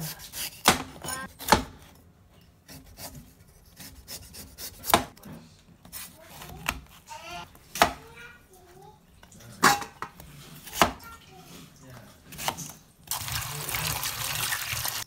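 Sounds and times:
cleaver scraping gourd skin: 0.0s - 1.6s, 2.6s - 5.2s.

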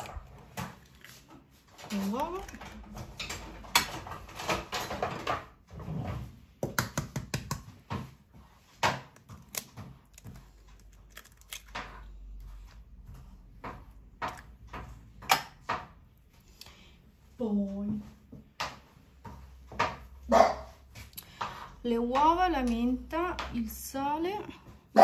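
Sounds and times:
eggs cracking against bowl: 8.9s - 12.1s.

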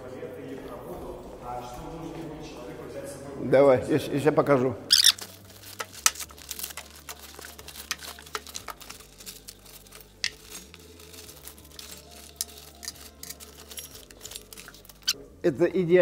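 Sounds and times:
plastic packaging crinkling: 4.9s - 15.2s.

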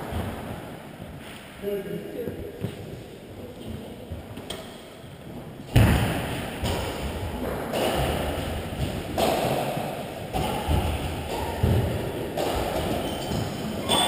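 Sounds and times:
shuttlecock hits: 6.6s - 14.0s.

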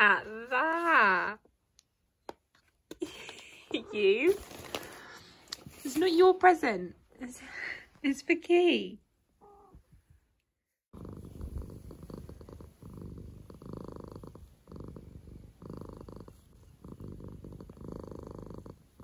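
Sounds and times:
cat purring: 10.9s - 19.0s.

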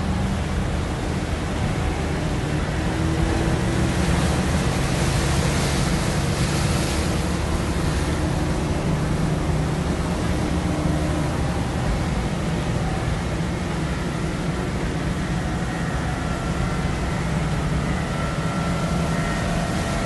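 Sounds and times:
surf washing against rocks: 0.0s - 15.2s
boat engines droning: 0.0s - 20.0s.

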